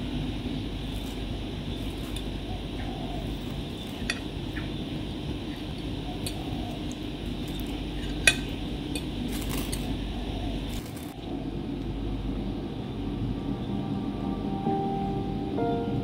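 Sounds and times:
steady background hum: 0:00.0 - 0:16.0
cutlery scraping on ceramic plates: 0:03.3 - 0:04.7, 0:07.5 - 0:09.9.

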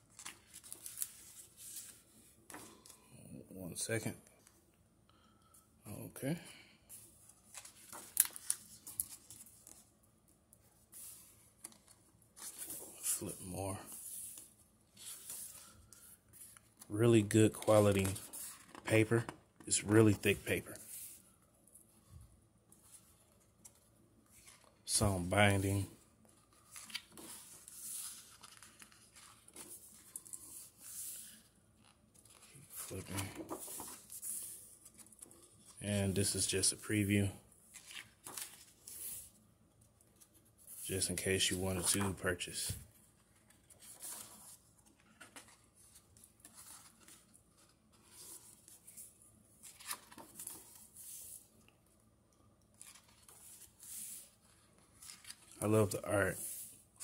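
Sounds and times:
book pages flipping: 0:00.0 - 0:03.0, 0:06.9 - 0:10.0, 0:10.6 - 0:21.2, 0:22.7 - 0:36.4, 0:37.1 - 0:39.4, 0:40.0 - 0:51.7, 0:52.6 - 0:56.9
light paper rustling: 0:00.0 - 0:03.0, 0:06.9 - 0:10.0, 0:10.6 - 0:22.1, 0:22.7 - 0:39.4, 0:40.0 - 0:51.7, 0:52.7 - 0:56.8.

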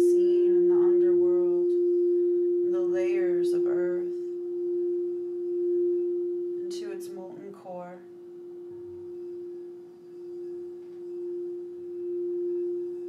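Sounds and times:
woman's voice: 0:00.0 - 0:01.8, 0:02.7 - 0:04.2, 0:06.7 - 0:08.1
crystal singing bowl ringing: 0:00.0 - 0:13.0.

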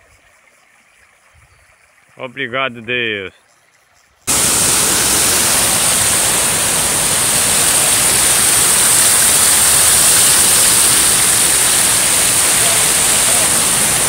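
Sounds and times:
floodwater rushing over spillway: 0:04.3 - 0:14.0.

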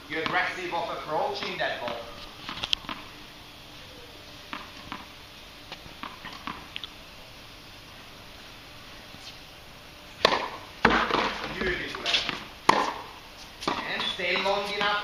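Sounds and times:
tennis ball bouncing on court: 0:00.2 - 0:00.5, 0:01.3 - 0:03.1, 0:04.5 - 0:05.1, 0:06.0 - 0:06.7, 0:10.2 - 0:15.0.

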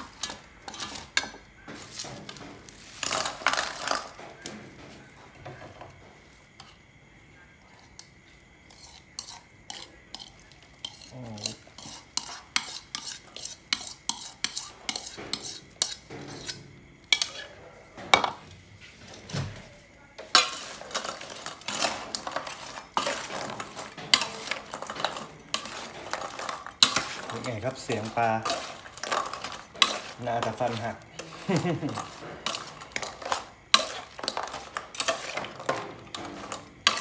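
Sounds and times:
metal spoon scraping ceramic bowl: 0:08.7 - 0:17.5, 0:20.3 - 0:37.0
crunching clatter of fried fish: 0:20.2 - 0:37.0.

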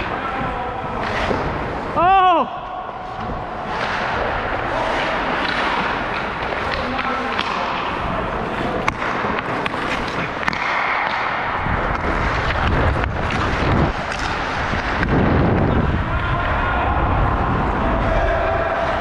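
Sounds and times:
hockey skates scraping ice: 0:02.9 - 0:16.6
wind rumble on microphone: 0:11.5 - 0:19.0
stick clicking on puck: 0:11.9 - 0:15.1.

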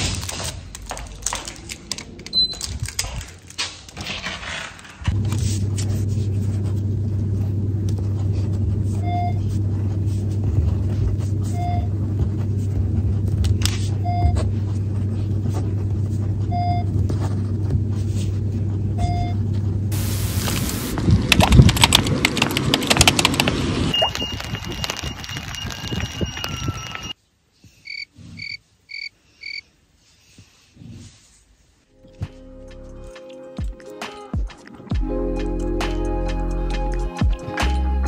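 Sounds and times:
low electrical hum: 0:00.0 - 0:22.2
short electronic beep: 0:23.9 - 0:27.2.

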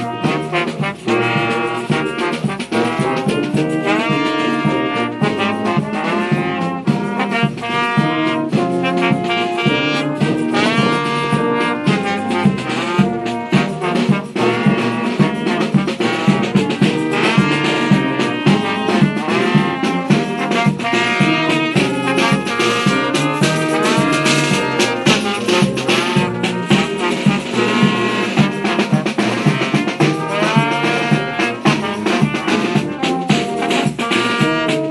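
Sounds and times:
brass band playing: 0:00.0 - 0:34.9
drum steady beat: 0:00.0 - 0:34.9.

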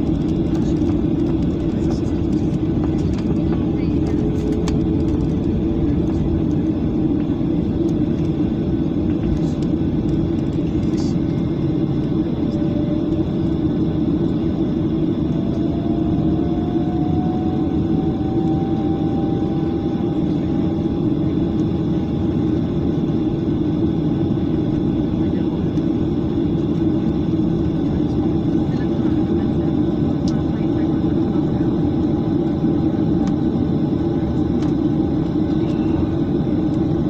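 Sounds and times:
faint rising whine: 0:00.0 - 0:21.6
jet engines humming in cabin: 0:00.0 - 0:37.0.

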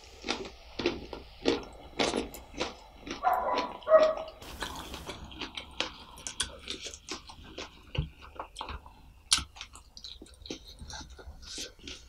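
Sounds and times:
wet chewing mouth clicks: 0:00.2 - 0:12.0.

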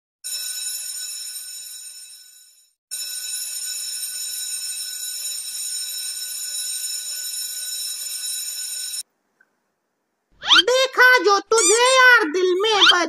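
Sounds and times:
electric bell ringing: 0:00.3 - 0:09.0.

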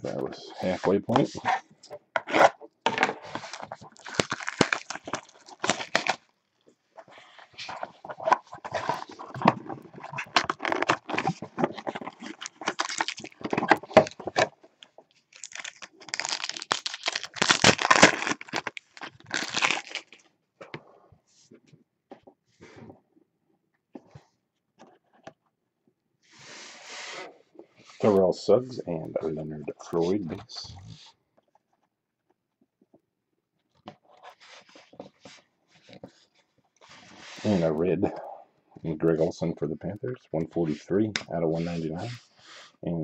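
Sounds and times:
cardboard rustling and tearing: 0:02.2 - 0:06.3, 0:07.4 - 0:14.6, 0:15.4 - 0:20.2
packaging crinkling: 0:02.2 - 0:06.6, 0:07.6 - 0:20.3.

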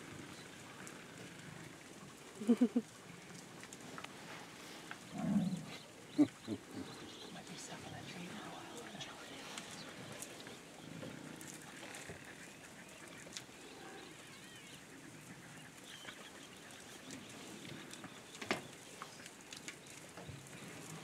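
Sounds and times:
animals shuffling: 0:03.1 - 0:21.0
small birds chirping: 0:04.9 - 0:21.0.

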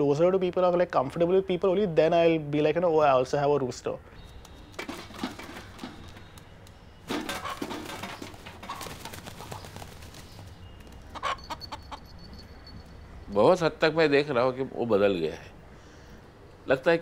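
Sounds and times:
wing flaps: 0:07.1 - 0:11.2
rooster sounds: 0:11.1 - 0:12.4.

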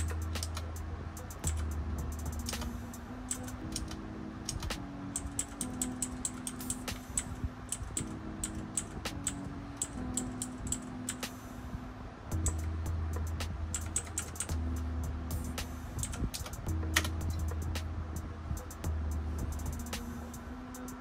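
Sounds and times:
computer keyboard tapping: 0:00.0 - 0:02.7, 0:03.3 - 0:11.4, 0:12.4 - 0:14.6
soft background music: 0:00.0 - 0:21.0.

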